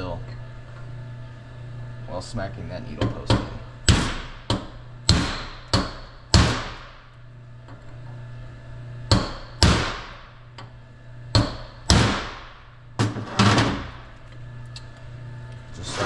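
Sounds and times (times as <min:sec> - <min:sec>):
hammer striking metal: 0:03.0 - 0:06.9, 0:09.1 - 0:10.2, 0:11.4 - 0:12.4.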